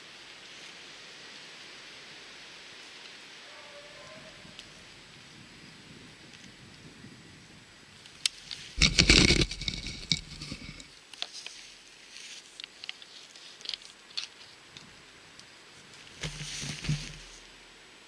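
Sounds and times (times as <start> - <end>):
light ticks and crackles: 6.3 - 6.8, 8.0 - 17.5
handling noise rustling and scraping: 8.4 - 14.6, 15.8 - 17.6.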